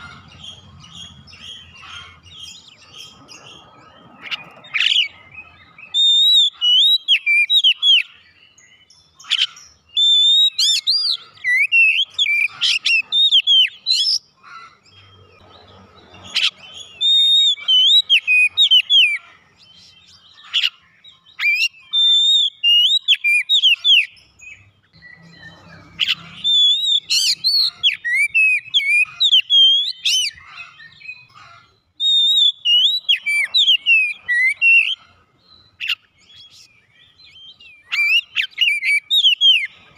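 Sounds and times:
bird singing whistled phrases: 0:04.4 - 0:14.3, 0:16.4 - 0:19.2, 0:21.2 - 0:31.2, 0:32.0 - 0:35.0, 0:35.6 - 0:39.8.

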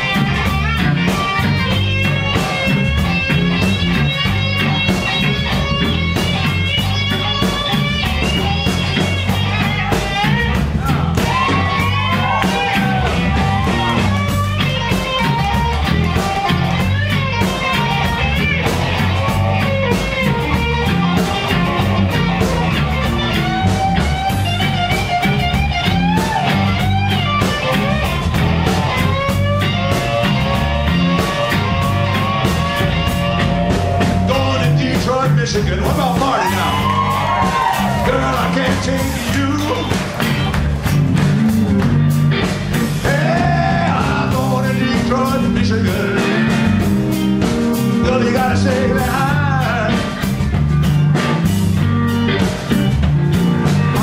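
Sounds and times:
electric guitar solo: 0:00.0 - 0:35.0, 0:36.1 - 0:43.0
bass and drums beat: 0:00.0 - 0:54.0.

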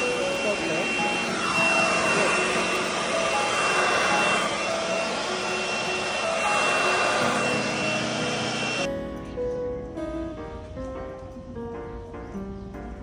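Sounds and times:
leaf blower running: 0:00.0 - 0:08.9.

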